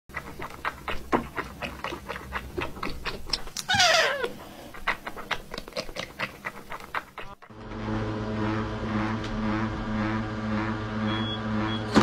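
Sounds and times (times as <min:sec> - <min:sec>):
kitten sucking from a bottle: 0:00.2 - 0:04.3.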